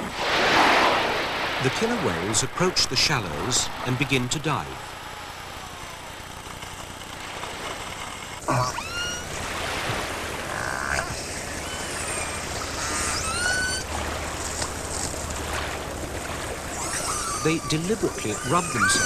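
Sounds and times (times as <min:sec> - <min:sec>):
killer whale calls and whistles: 0:08.4 - 0:15.2, 0:16.4 - 0:19.0.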